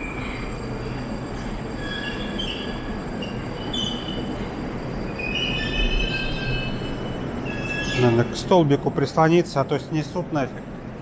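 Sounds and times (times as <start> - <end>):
wheel squeals: 0.0 - 8.4
train rumble: 0.0 - 11.0.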